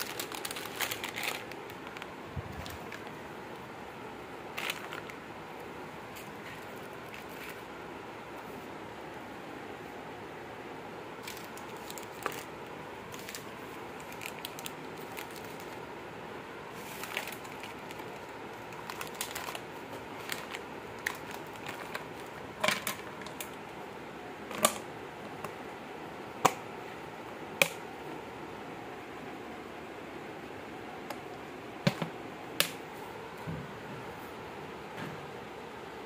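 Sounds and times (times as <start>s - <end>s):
plastic wrappers crinkling: 0.0s - 3.4s, 4.5s - 5.4s, 6.0s - 7.8s, 11.2s - 15.9s, 16.7s - 23.7s
packets tapping plastic basket: 17.0s - 23.5s, 31.8s - 32.7s.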